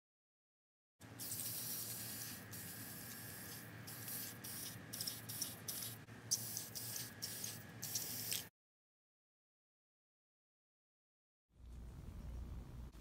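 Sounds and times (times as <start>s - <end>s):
aerosol spray can hissing: 1.2s - 8.5s.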